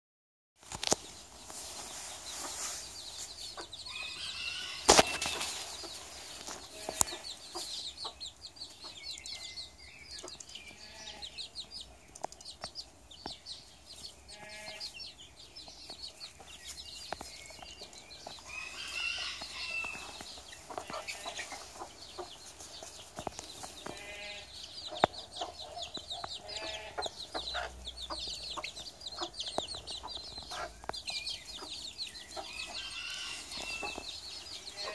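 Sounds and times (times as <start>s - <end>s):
baby chicks peeping: 0.6s - 34.9s
hen clucking: 3.5s - 9.4s, 18.3s - 34.9s.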